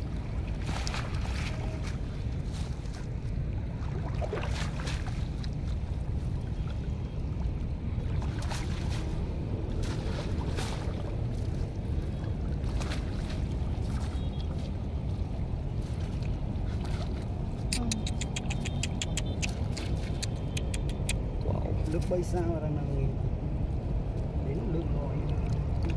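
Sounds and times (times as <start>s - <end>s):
steady low rumble: 0.0s - 25.9s
water sloshing and splashing: 0.0s - 25.9s.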